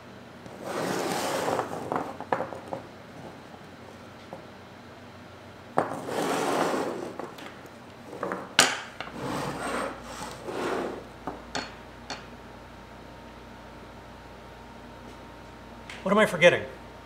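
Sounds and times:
objects scraping across wood: 0.5s - 3.4s, 5.8s - 7.4s, 8.1s - 11.1s
objects knocking on workbench: 1.9s - 2.8s.

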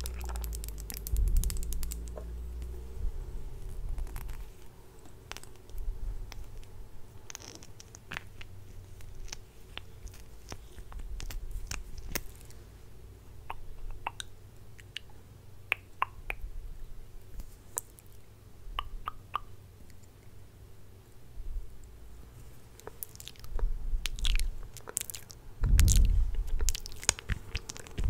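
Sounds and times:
faint low hum: 0.0s - 28.0s
wet lip smacks and clicks: 13.4s - 16.4s, 18.8s - 20.3s, 22.8s - 28.0s.

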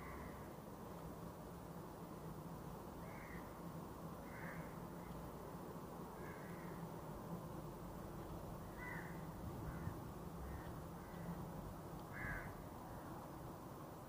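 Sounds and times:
crows cawing: 0.0s - 0.4s, 3.0s - 3.5s, 4.2s - 4.8s, 6.2s - 6.8s, 8.7s - 11.4s, 12.1s - 13.0s.

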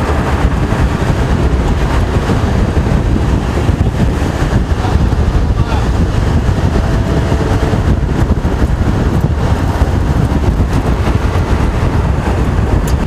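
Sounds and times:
strong wind buffeting microphone: 0.0s - 13.0s.

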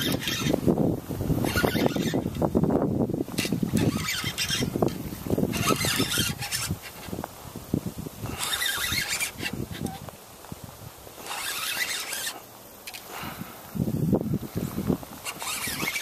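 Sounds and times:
fishing reel cranking: 0.0s - 0.7s, 1.4s - 2.6s, 3.3s - 7.2s, 8.2s - 10.0s, 11.2s - 13.2s, 15.2s - 16.0s
wind buffeting microphone: 0.0s - 12.3s, 13.1s - 16.0s.

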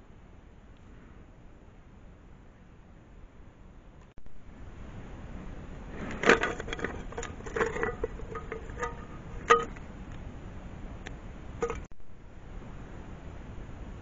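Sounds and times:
hard objects knocking and clinking: 6.2s - 9.8s, 11.6s - 11.9s.

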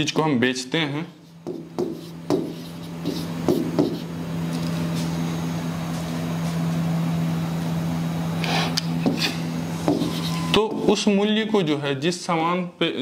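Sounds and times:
steady low hum: 0.0s - 13.0s
marker scratching on whiteboard: 1.2s - 4.2s, 9.8s - 10.5s.

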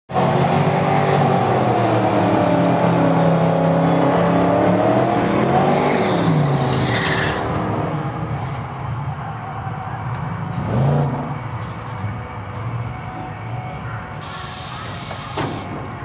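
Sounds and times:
tyre squeal: 5.8s - 7.5s.

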